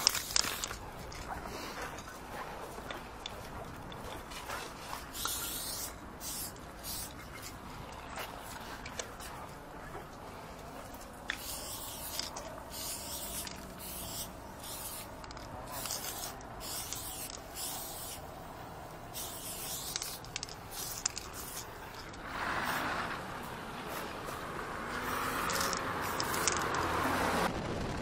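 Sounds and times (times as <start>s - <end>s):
spray paint can hissing: 0.0s - 0.8s, 5.1s - 7.6s, 11.3s - 18.4s, 19.0s - 22.9s, 25.0s - 27.0s
broad rushing noise: 10.0s - 28.0s.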